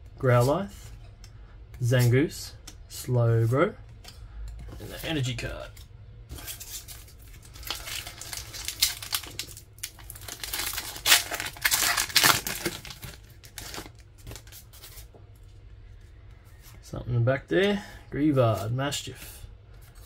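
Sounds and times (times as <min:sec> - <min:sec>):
foil wrapper crinkling: 0:06.4 - 0:15.1
wrapper ripping open: 0:06.6 - 0:15.0.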